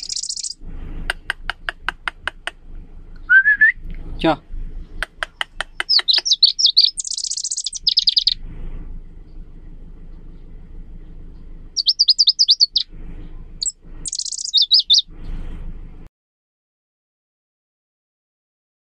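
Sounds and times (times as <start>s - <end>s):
bird trilling song: 0.0s - 0.6s, 4.8s - 8.4s, 11.3s - 15.5s
low background rumble: 0.0s - 16.1s.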